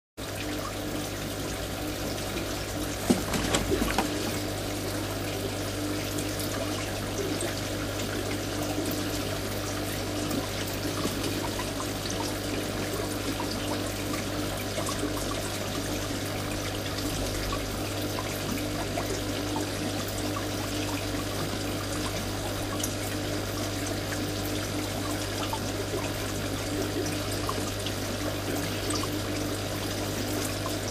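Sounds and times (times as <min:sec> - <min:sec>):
low pump hum: 0:00.2 - 0:30.9
water trickling and splashing: 0:00.2 - 0:30.9.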